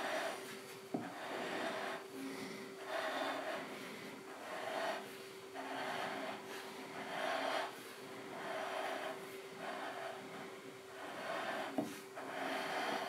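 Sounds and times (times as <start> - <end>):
faint steady hum: 0.0 - 13.0
person breathing close to microphone: 0.0 - 13.0.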